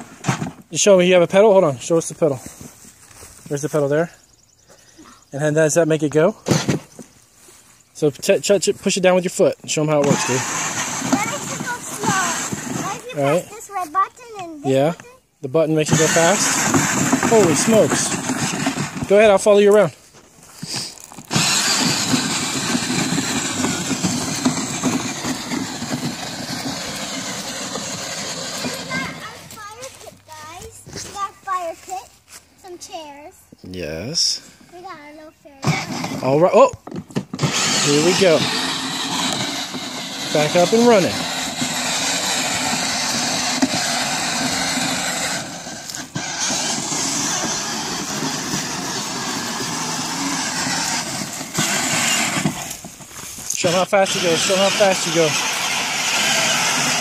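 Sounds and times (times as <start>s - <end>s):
toy motorcycle motor whirring: 9.7s - 15.0s, 15.8s - 19.8s, 20.5s - 30.5s, 35.0s - 57.0s.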